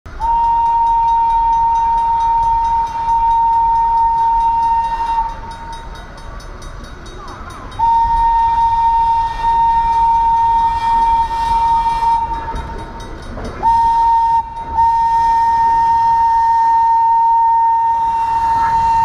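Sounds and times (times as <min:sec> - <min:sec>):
train horn blasts: 0:00.1 - 0:05.8, 0:07.8 - 0:12.7, 0:13.6 - 0:19.0.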